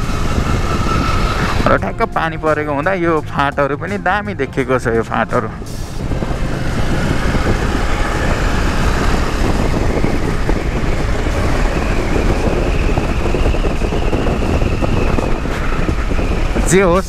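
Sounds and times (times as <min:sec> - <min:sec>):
motorcycle engine: 0:00.0 - 0:01.9, 0:05.5 - 0:17.0
wind noise on microphone: 0:00.0 - 0:17.0.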